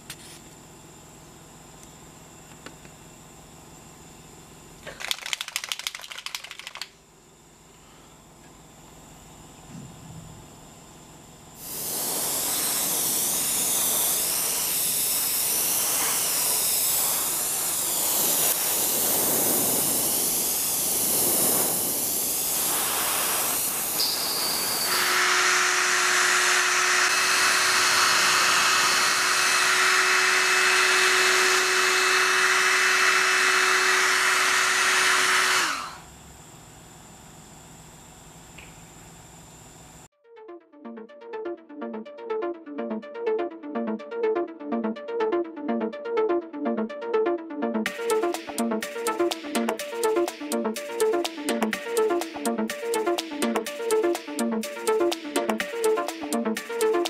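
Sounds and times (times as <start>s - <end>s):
steady hum: 6.5s - 40.1s, 40.8s - 57.0s
airbrush hiss: 11.6s - 25.8s.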